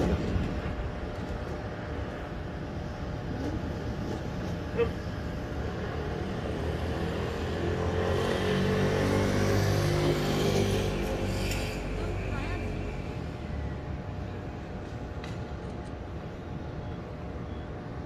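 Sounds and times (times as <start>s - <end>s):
background traffic: 0.0s - 18.0s
vehicle engine approaching: 3.2s - 14.1s.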